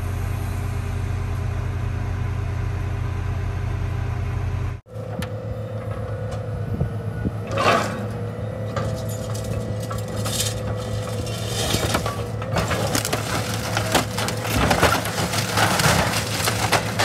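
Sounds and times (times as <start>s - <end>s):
engine running: 0.0s - 17.0s
loud grinding scrape: 7.5s - 17.0s.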